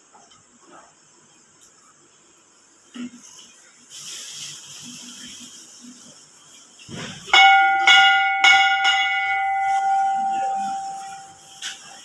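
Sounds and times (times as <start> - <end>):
temple bell ringing: 7.3 - 11.5.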